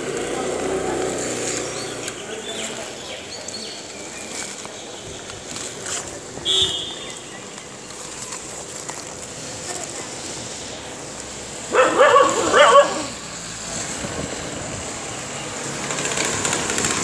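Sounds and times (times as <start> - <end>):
passing traffic: 0.0 - 17.0
dog yelping: 11.7 - 13.2.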